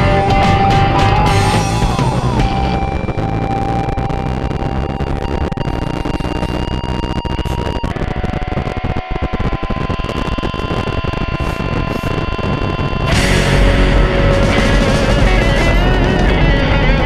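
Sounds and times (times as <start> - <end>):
loud music: 0.0 - 7.7, 13.0 - 17.0
wind noise: 0.0 - 17.0.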